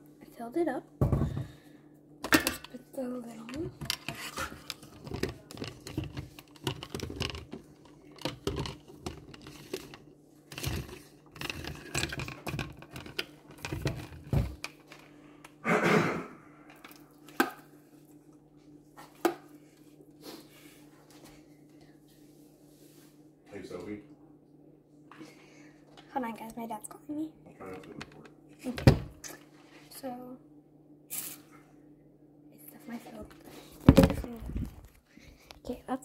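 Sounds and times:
plastic containers clicking and knocking: 0:03.5 - 0:14.8.

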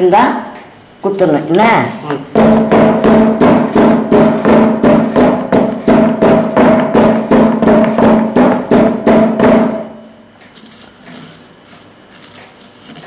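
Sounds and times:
stone pestle pounding in mortar: 0:02.1 - 0:10.1.

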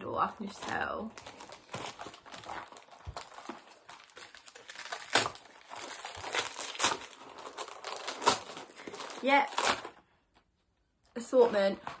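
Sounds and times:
wrapping paper crinkling and tearing: 0:00.4 - 0:10.0.

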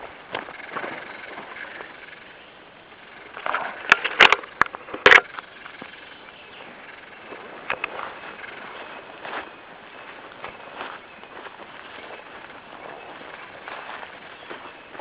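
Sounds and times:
twigs cracking underfoot: 0:03.2 - 0:15.0.

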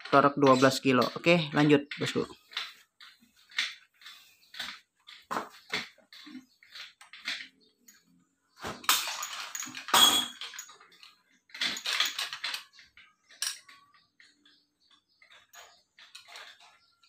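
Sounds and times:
metal clanking and rattling: 0:08.7 - 0:17.0.

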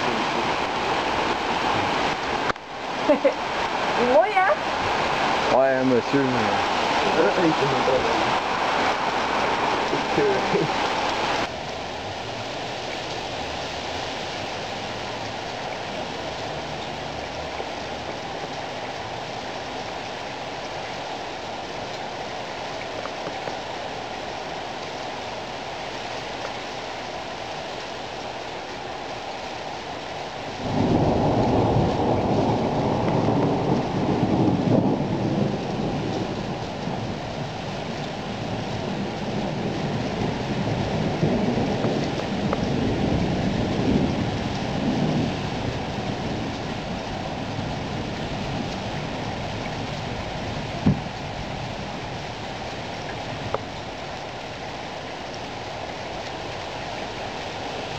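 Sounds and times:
rain falling steadily: 0:00.0 - 0:57.9
thunder rumbling: 0:30.6 - 0:54.2.

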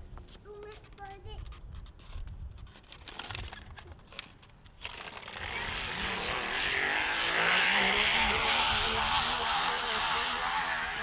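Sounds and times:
vehicle rushing: 0:05.4 - 0:11.0.

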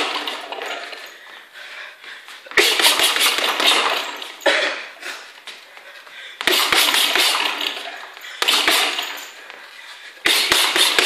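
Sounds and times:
gloves slapping punching ball: 0:02.5 - 0:04.0, 0:06.4 - 0:07.6, 0:10.3 - 0:11.0.

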